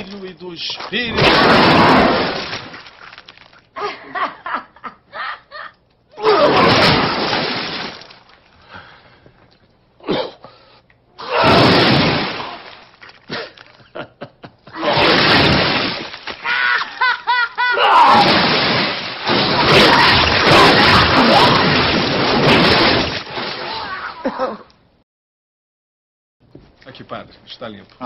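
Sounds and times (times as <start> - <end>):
choppy spluttering: 0.7 - 3.4, 14.9 - 16.5
person vomiting: 6.2 - 6.8, 10.0 - 10.4, 13.3 - 13.7, 14.7 - 15.4, 17.7 - 18.5, 23.6 - 24.7.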